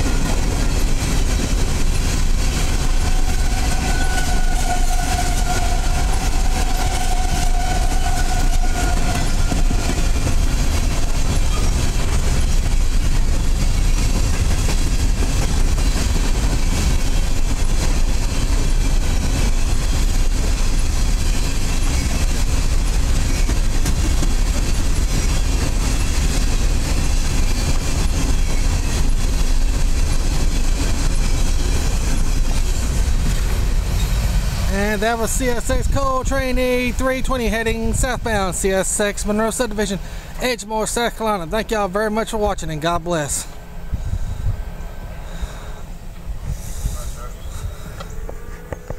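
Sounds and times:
wheels clacking over rail joints: 0.0s - 37.7s, 47.6s - 48.9s
freight train rolling past: 0.0s - 48.9s.

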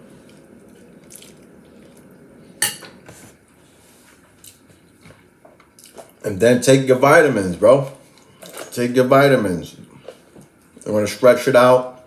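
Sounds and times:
person chewing noodles: 0.0s - 2.3s, 5.7s - 6.2s.

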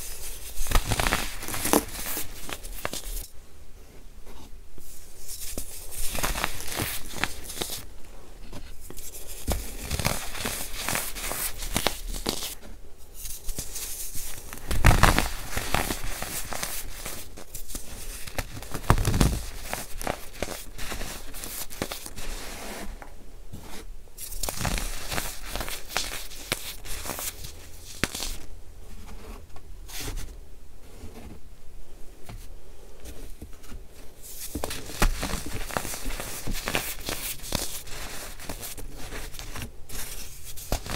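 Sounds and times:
hands crushing powder: 0.0s - 3.3s, 4.8s - 12.6s, 13.2s - 22.8s, 23.7s - 28.5s, 34.2s - 40.9s.

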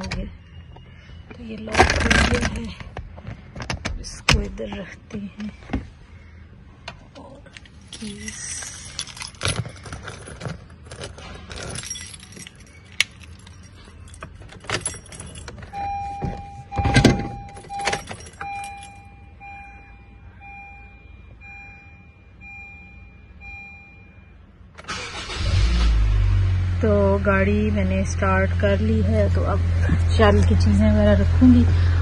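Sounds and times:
car keys jangling: 7.6s - 19.5s
car warning chime beeps: 14.9s - 25.4s
car engine starting and running: 20.4s - 32.0s.

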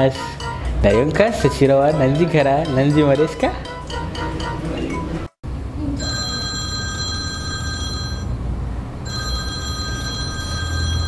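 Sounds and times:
telephone ringing: 6.0s - 8.4s, 9.0s - 11.0s.

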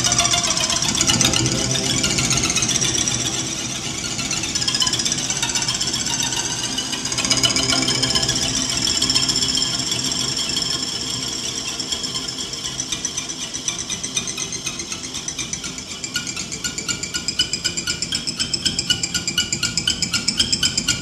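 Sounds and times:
cello with electronic effects: 0.0s - 10.8s.

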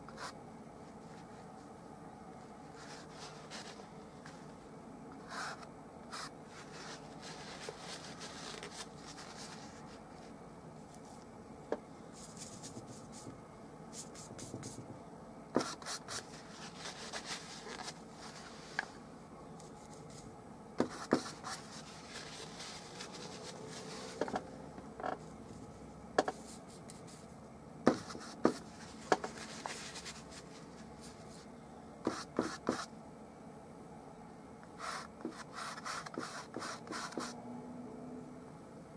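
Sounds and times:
brush scrubbing on canvas: 15.6s - 18.8s.

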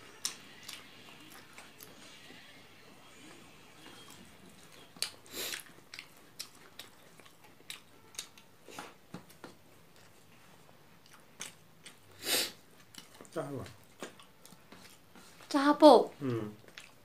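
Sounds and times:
wet chewing and lip smacks: 3.8s - 8.5s, 10.9s - 15.5s, 16.1s - 17.0s.

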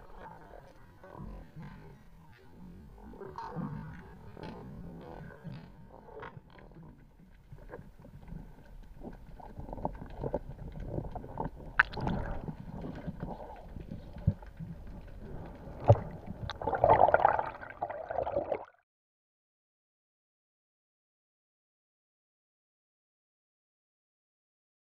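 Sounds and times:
muffled underwater rumble: 0.0s - 18.7s
clicks and knocks underwater: 3.4s - 18.8s.

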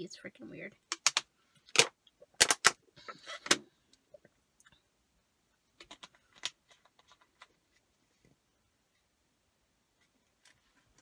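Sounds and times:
plastic bottle crackling: 0.9s - 3.6s.

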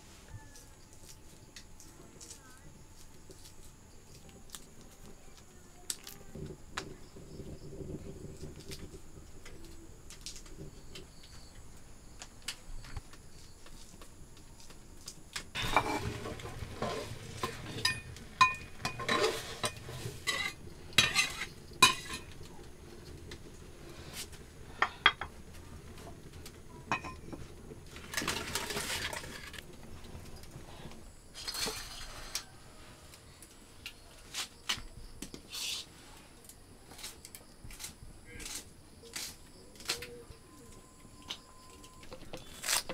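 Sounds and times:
pots and utensils clattering: 15.5s - 22.5s, 24.7s - 25.4s, 26.9s - 29.6s, 31.4s - 32.5s.

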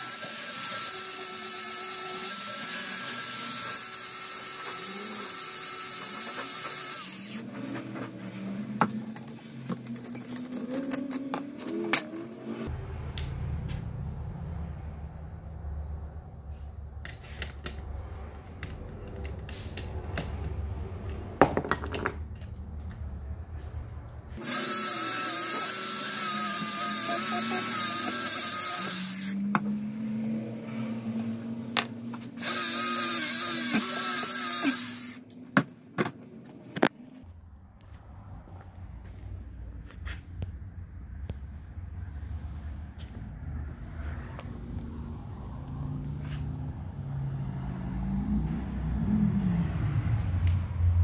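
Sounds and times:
angle grinder wire wheel whine: 24.4s - 29.5s, 32.3s - 35.2s.

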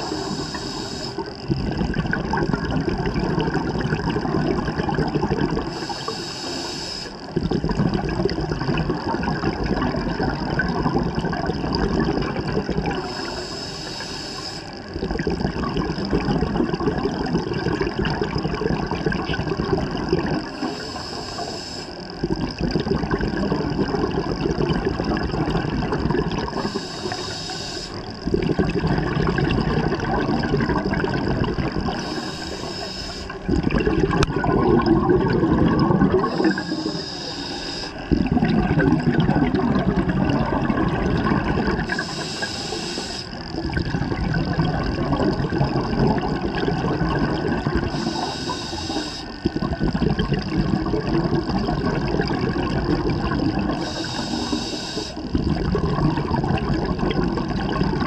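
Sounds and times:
regulator inhale hiss: 0.0s - 1.4s, 5.6s - 7.3s, 13.0s - 14.9s, 20.4s - 22.2s, 26.4s - 28.2s, 31.9s - 33.5s, 36.1s - 38.2s, 41.8s - 43.4s, 47.7s - 49.4s, 53.7s - 55.3s
exhaled air bubbling underwater: 0.0s - 58.0s.

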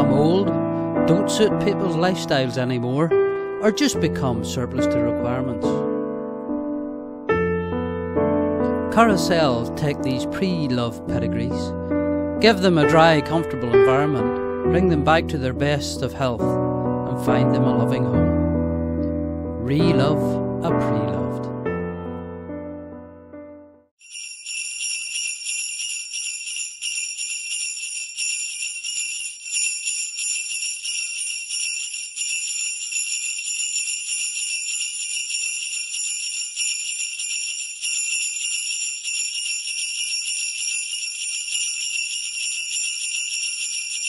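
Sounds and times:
sleigh bells jingling: 24.0s - 44.0s.

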